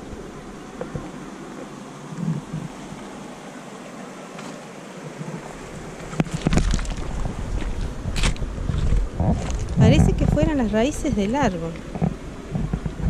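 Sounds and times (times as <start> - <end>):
wind hiss: 0.0 - 13.0
wind buffeting microphone: 5.4 - 13.0.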